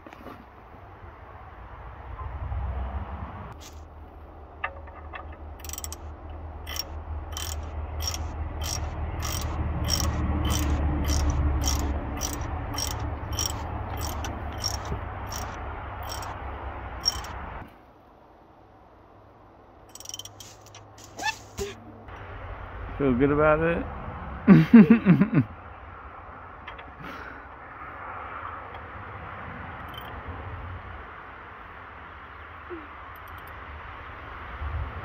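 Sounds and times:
ratchet wrench clicking: 0:05.1 - 0:16.4, 0:17.0 - 0:17.4, 0:19.9 - 0:21.6, 0:29.8 - 0:30.2.

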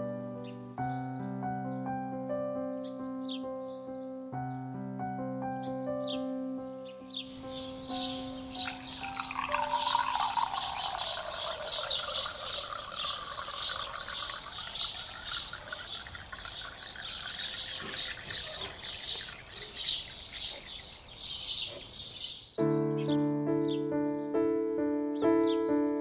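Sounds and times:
piano music: 0:00.0 - 0:14.5, 0:22.6 - 0:26.0
birds chirping: 0:07.2 - 0:24.3
drink trickling into a cup: 0:07.4 - 0:21.4.

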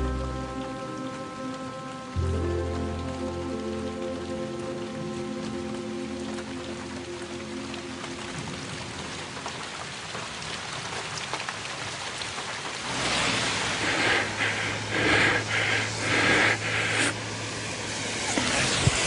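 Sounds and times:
heavy rain falling: 0:00.0 - 0:19.0
rushing noise with low hum: 0:12.7 - 0:19.0.

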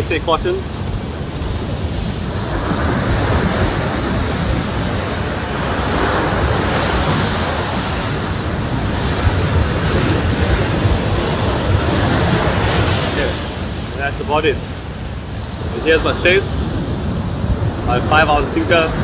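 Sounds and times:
surf breaking on sandy beach: 0:00.0 - 0:19.0
wind buffeting microphone: 0:00.0 - 0:19.0.

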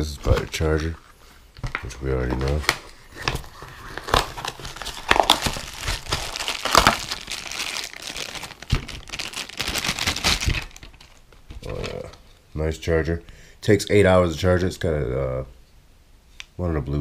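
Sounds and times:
cardboard packaging rustling: 0:00.0 - 0:12.2
plastic bag crinkling: 0:01.8 - 0:12.2.

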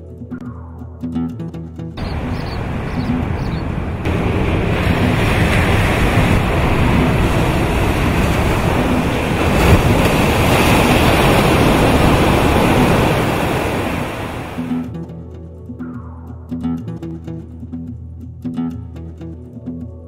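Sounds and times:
waves breaking on beach: 0:02.0 - 0:14.8.

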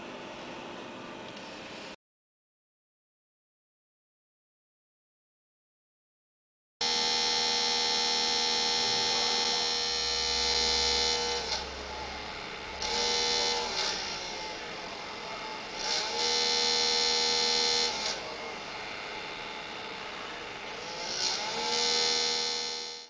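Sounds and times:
small motor high whine: 0:06.8 - 0:23.0.

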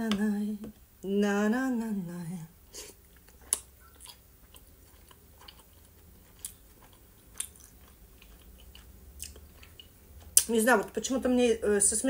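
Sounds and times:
close-miked chewing: 0:03.0 - 0:10.5.

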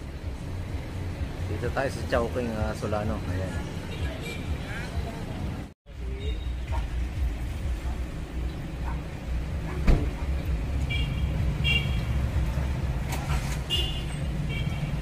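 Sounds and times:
street traffic rumble: 0:00.0 - 0:15.0
sharp thump: 0:09.8 - 0:10.2.

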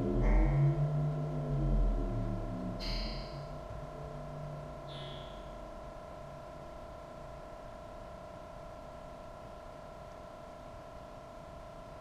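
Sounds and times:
sustained electronic chord: 0:00.0 - 0:05.6.

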